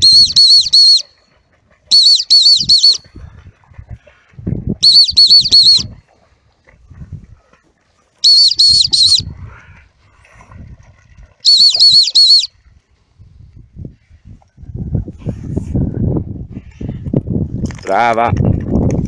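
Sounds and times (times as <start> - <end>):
dog whistle pips: 0.0 - 1.2, 1.9 - 3.2, 4.8 - 6.0, 8.2 - 9.3, 11.4 - 12.5.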